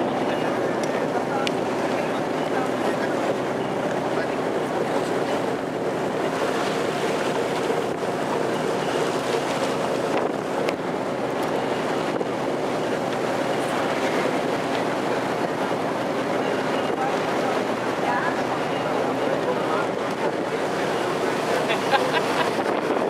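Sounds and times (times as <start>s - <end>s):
motorboat engine hum: 0.0s - 23.0s
water rushing: 0.0s - 23.0s
wind buffeting microphone: 0.0s - 23.0s.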